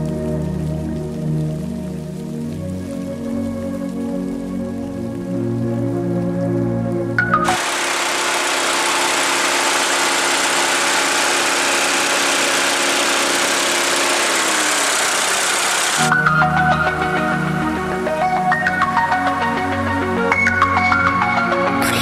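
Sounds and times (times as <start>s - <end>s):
car engine idling: 7.5s - 16.2s.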